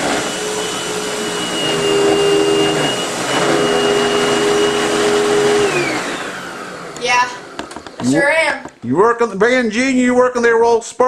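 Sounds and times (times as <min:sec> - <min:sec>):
vacuum cleaner motor whine: 0:00.0 - 0:08.2.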